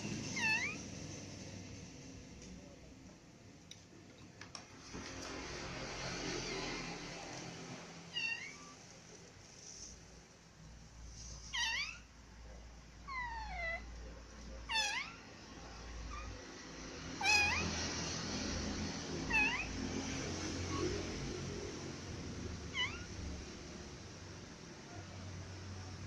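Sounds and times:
kitten meowing: 0:00.3 - 0:00.8, 0:08.1 - 0:08.8, 0:11.4 - 0:12.1, 0:13.1 - 0:13.9, 0:14.6 - 0:15.2, 0:17.2 - 0:17.8, 0:19.3 - 0:19.7, 0:22.7 - 0:23.2.

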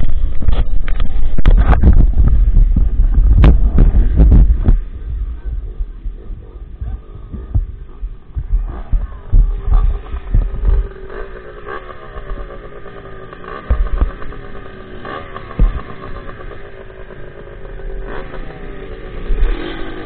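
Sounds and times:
dirt bike engine idling: 0:00.0 - 0:20.0
thumps on microphone: 0:00.3 - 0:05.0, 0:06.8 - 0:10.8, 0:13.6 - 0:14.2, 0:15.5 - 0:16.0.

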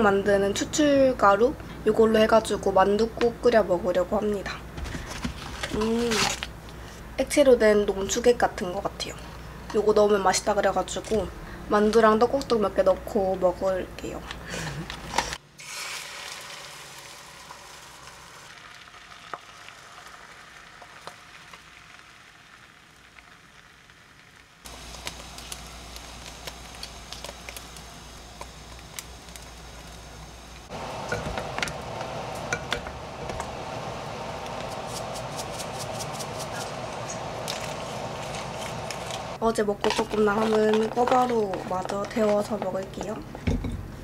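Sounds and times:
water boiling in a pot: 0:15.6 - 0:43.3.

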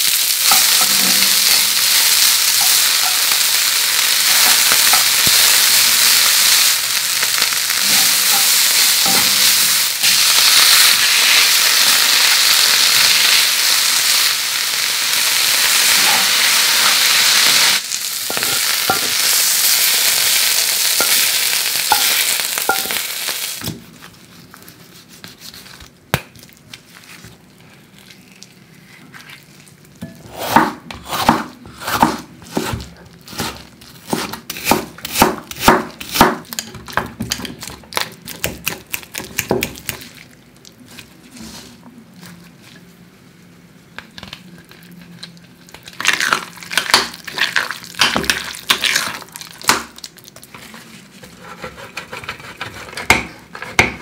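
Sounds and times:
onions and mushrooms sizzling: 0:00.0 - 0:24.4, 0:26.8 - 0:43.5, 0:44.4 - 0:51.7
knife chopping on wooden board: 0:30.3 - 0:36.4, 0:53.0 - 0:54.0.

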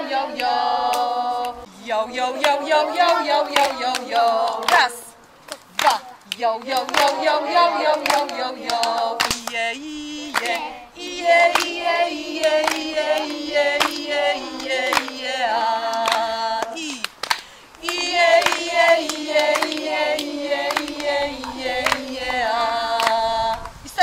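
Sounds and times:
woman and children singing: 0:00.0 - 0:24.0
clapping to a beat: 0:00.4 - 0:01.1, 0:02.4 - 0:10.7, 0:11.3 - 0:23.8.

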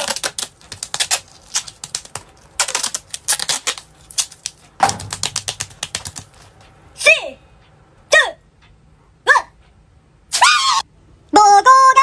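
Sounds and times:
duct tape crackling: 0:00.0 - 0:06.7.

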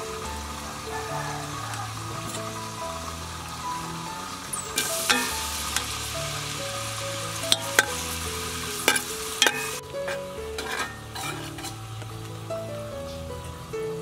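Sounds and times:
food sizzling in oil: 0:00.0 - 0:13.7
background music: 0:00.0 - 0:14.0
metal ladle clinking on pot: 0:04.8 - 0:05.9, 0:07.5 - 0:08.0, 0:08.8 - 0:11.8.

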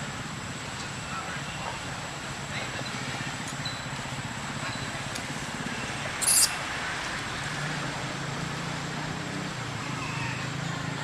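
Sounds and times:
faint high chirps: 0:06.2 - 0:06.6.

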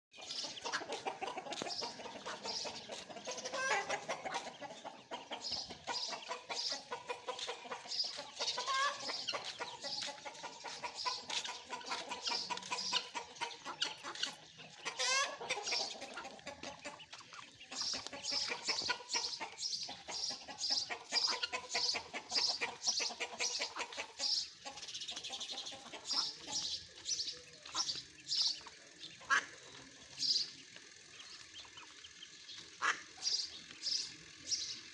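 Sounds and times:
ducklings peeping: 0:00.1 - 0:34.9
adult fowl calling: 0:08.5 - 0:16.2, 0:32.8 - 0:33.2.

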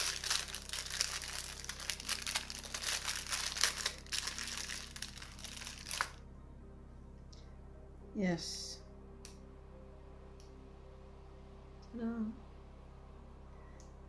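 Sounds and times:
packaging crinkling and rustling: 0:00.0 - 0:06.2.

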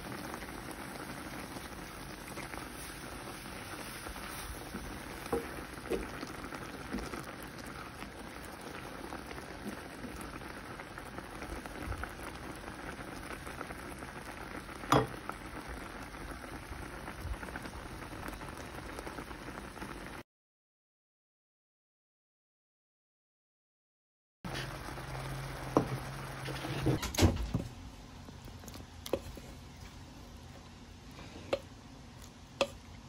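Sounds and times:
syrup bubbling and sizzling: 0:00.0 - 0:20.2, 0:24.5 - 0:33.0
spatula stirring and tapping pan: 0:03.8 - 0:07.2, 0:31.3 - 0:32.9.

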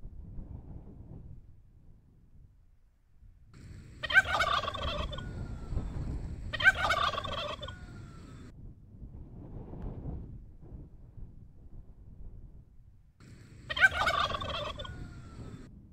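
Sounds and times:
warbling fowl-like calls: 0:03.6 - 0:08.5, 0:13.2 - 0:15.7.

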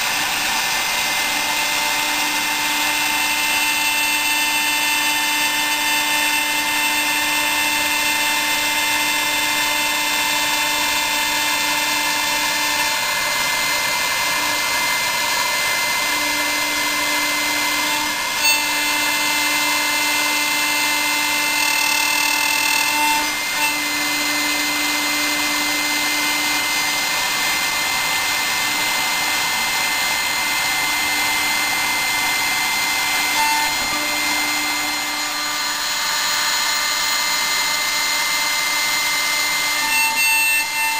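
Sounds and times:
milling machine cutting metal: 0:00.0 - 0:40.9.

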